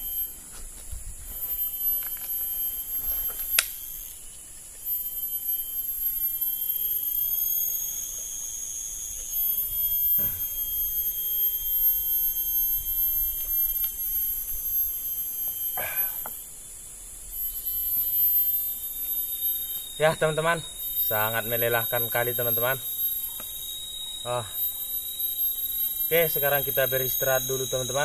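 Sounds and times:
forest insects droning: 0.0 - 28.0.

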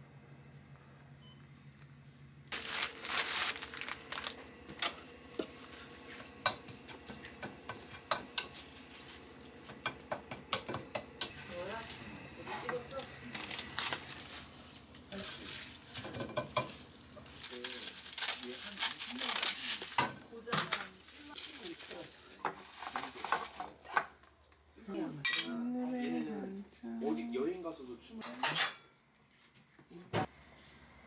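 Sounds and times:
steady sizzle: 2.5 - 23.7
utensils clinking against pots: 25.2 - 25.6, 28.2 - 28.8.

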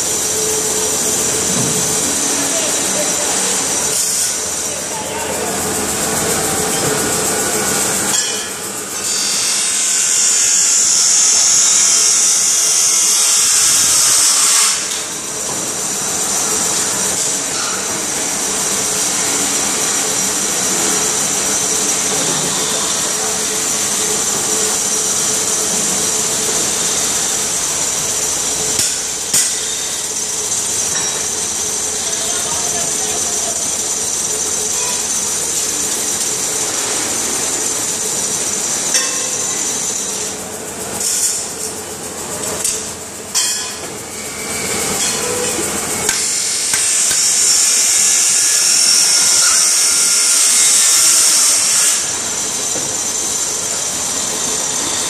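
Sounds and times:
lathe hum: 0.0 - 55.0
loud high hiss: 0.0 - 55.0.

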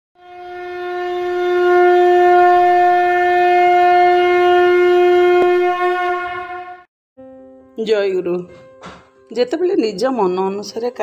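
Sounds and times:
conch shell blown in long note: 0.2 - 6.9.

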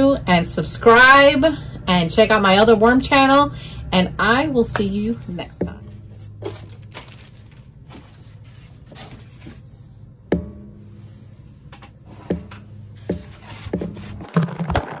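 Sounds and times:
steady low hum: 0.0 - 14.1
packing rustle: 6.2 - 9.5
hands knocking and rubbing foam: 12.2 - 15.0.

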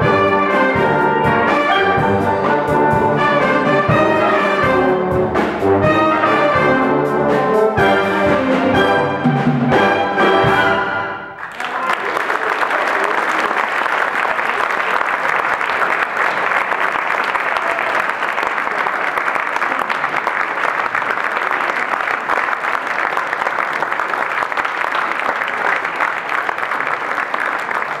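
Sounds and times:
audience applauding: 11.3 - 28.0.

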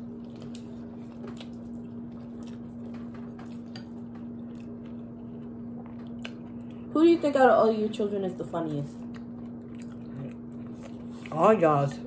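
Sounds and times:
wet chewing of noodles: 0.0 - 6.9, 8.7 - 12.0
steady low hum: 0.0 - 12.0.

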